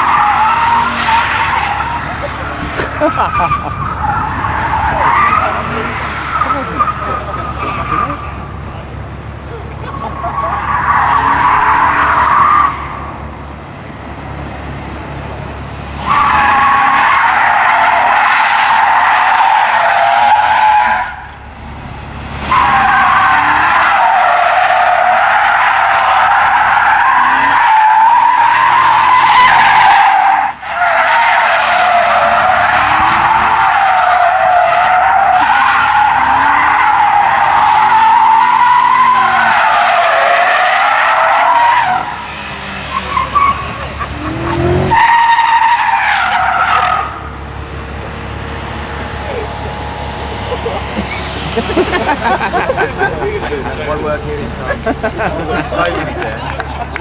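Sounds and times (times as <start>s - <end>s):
car engine revving: 0.0s - 57.0s
car tyres screeching: 0.0s - 57.0s.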